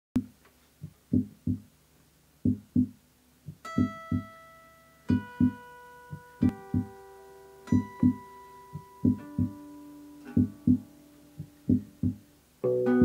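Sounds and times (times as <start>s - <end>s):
looped drum beats: 0.2s - 1.7s, 2.4s - 4.3s, 5.1s - 7.0s, 7.7s - 9.6s, 10.3s - 12.3s
acoustic guitar: 3.5s - 13.0s.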